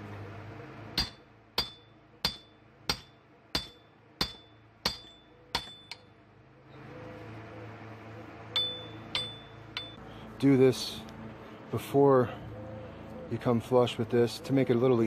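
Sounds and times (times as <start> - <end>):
hammer striking metal: 1.0 - 6.1, 8.5 - 10.0.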